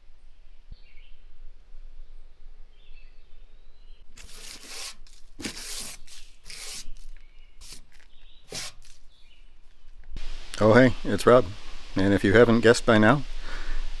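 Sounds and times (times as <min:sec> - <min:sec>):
scratchy rustling and rubbing: 0:04.2 - 0:09.0.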